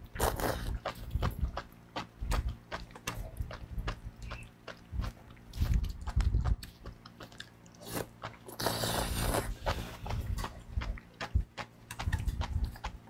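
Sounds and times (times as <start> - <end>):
wet chewing and mouth clicks: 0.0 - 13.0
long slurp: 7.8 - 10.2.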